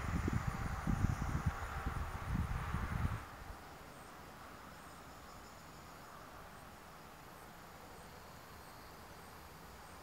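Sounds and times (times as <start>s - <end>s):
insect chirping: 0.0s - 10.0s
low outdoor hiss: 0.0s - 10.0s.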